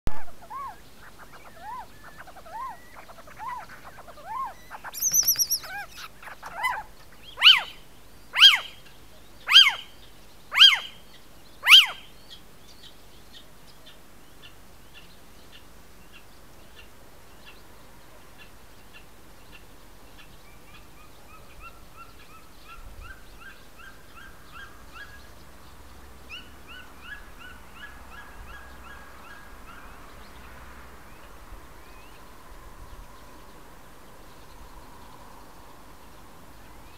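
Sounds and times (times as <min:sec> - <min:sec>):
faint rapid twittering: 0:00.1 - 0:07.8
loud yelping calls: 0:00.1 - 0:07.8, 0:08.4 - 0:08.8, 0:09.5 - 0:09.9, 0:10.5 - 0:11.0, 0:11.6 - 0:12.1
owls calling: 0:00.1 - 0:08.9, 0:09.5 - 0:09.9, 0:10.5 - 0:11.0, 0:11.6 - 0:12.1.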